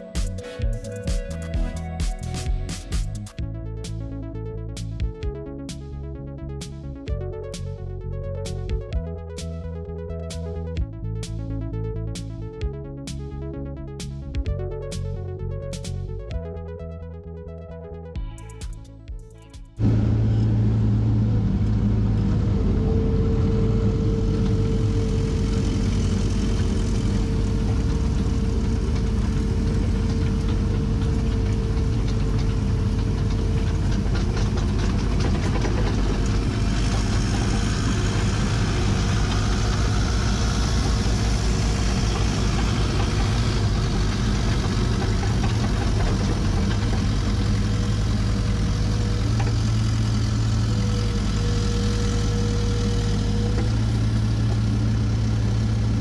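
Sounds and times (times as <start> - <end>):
engine idling with whine: 19.8 - 56.0.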